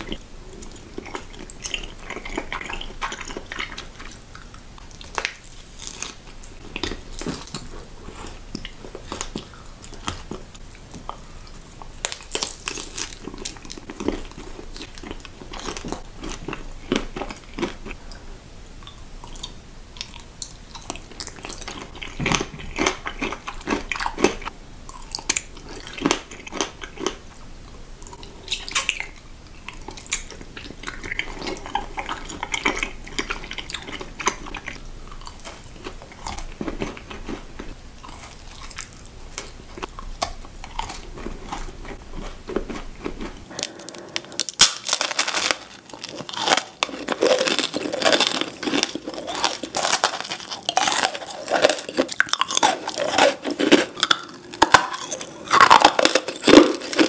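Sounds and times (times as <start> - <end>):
crunching candy chews: 0.0 - 18.2, 18.8 - 57.0.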